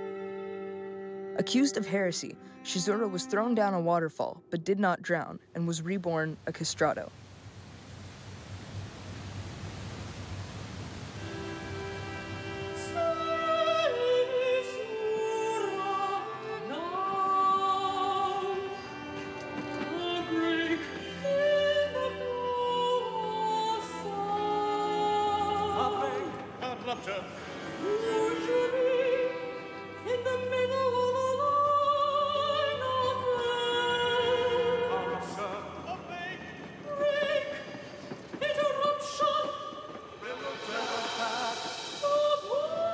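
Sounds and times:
instrumental accompaniment: 11.2s - 42.9s
operatic voice singing: 12.8s - 42.9s.

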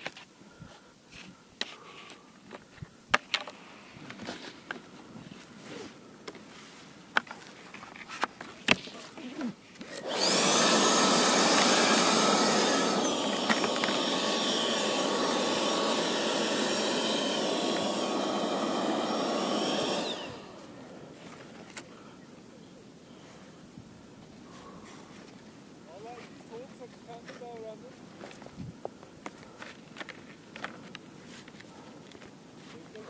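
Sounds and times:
electric fan whine: 9.9s - 22.1s.

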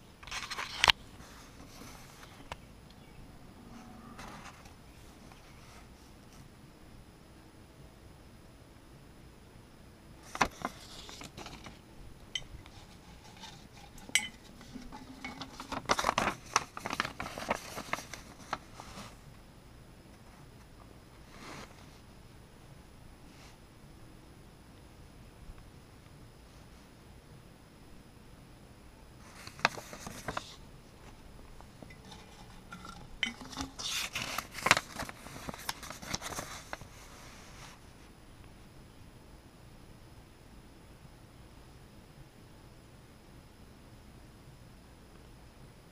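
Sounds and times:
paper crinkling: 0.2s - 2.6s, 10.2s - 11.8s, 12.6s - 19.2s, 29.2s - 37.8s
clicks and taps on glass jar: 14.0s - 14.4s
glass jar clinking: 14.0s - 15.5s, 31.9s - 33.8s.

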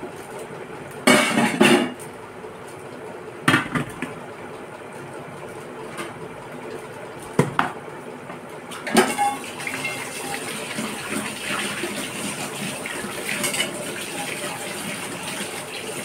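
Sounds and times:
water running and splashing: 9.3s - 16.0s.

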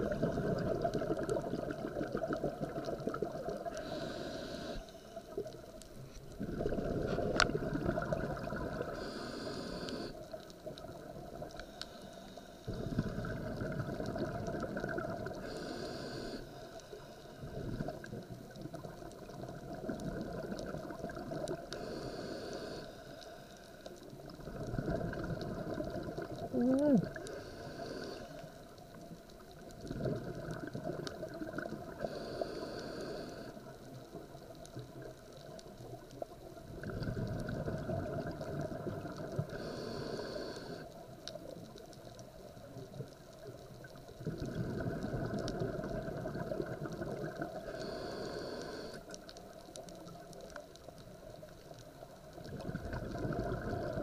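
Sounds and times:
bubbling exhaled air underwater: 0.0s - 5.5s, 6.2s - 11.6s, 12.7s - 16.4s, 17.4s - 22.8s, 24.1s - 28.2s, 29.6s - 49.3s, 50.0s - 54.0s
regulator inhalation hiss: 3.7s - 5.4s, 8.9s - 10.3s, 15.4s - 17.4s, 21.8s - 23.8s, 27.2s - 28.6s, 32.0s - 33.7s, 39.5s - 41.0s, 47.6s - 49.2s.

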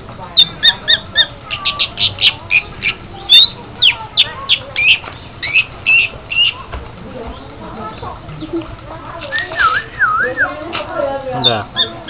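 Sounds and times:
bird chirping and whistling: 0.4s - 6.6s, 9.3s - 10.6s.

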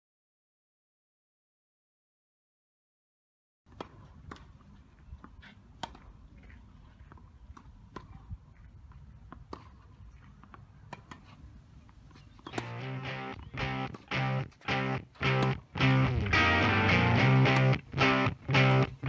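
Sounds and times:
tennis balls being struck: 3.7s - 4.6s, 5.2s - 19.0s
guitar music: 12.6s - 19.0s.

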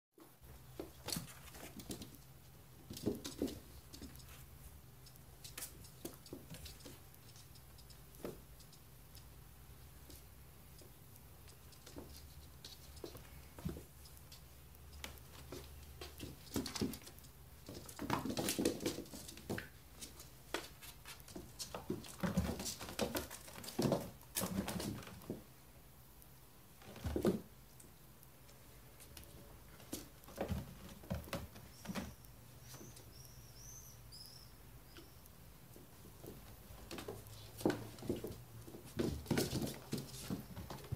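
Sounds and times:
small paws pattering and scuffling: 0.2s - 40.9s
light taps and rustles: 35.8s - 40.9s.

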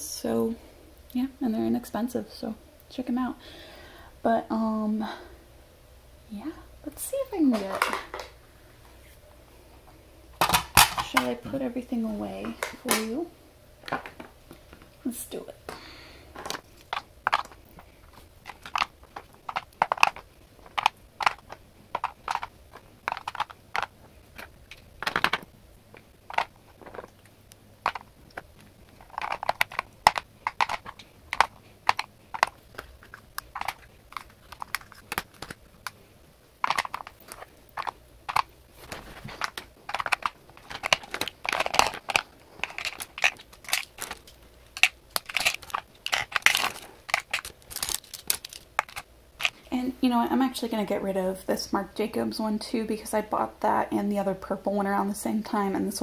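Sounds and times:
plastic makeup items clattering: 7.5s - 8.4s, 10.4s - 11.5s, 13.8s - 14.3s, 16.3s - 49.7s.

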